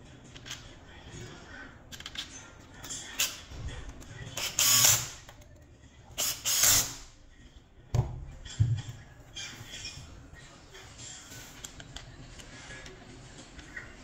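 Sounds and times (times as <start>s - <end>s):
impact driver bursts: 4.4s - 5.2s.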